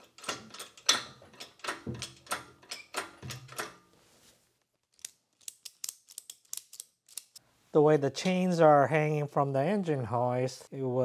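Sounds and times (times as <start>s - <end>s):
hydraulic hoist clacking: 0.0s - 3.8s.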